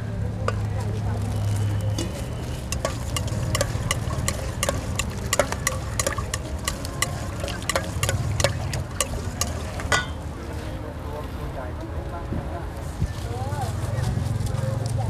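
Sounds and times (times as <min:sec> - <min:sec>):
utensils clinking against bowl: 0:01.8 - 0:10.3.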